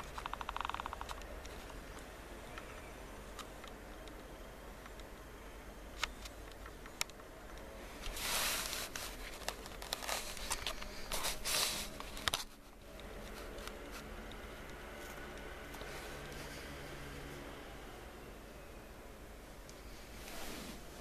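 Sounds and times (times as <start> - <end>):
sharp clicks: 0.0 - 5.3
rustling and handling noise: 0.0 - 17.5, 19.6 - 21.0.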